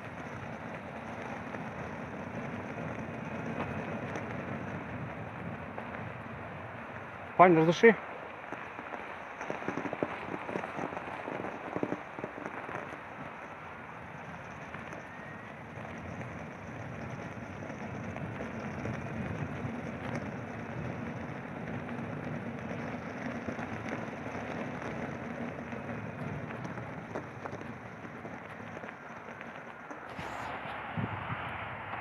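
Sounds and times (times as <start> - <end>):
tyre rolling on packed snow: 0.0 - 31.7
air rushing past: 30.1 - 32.0.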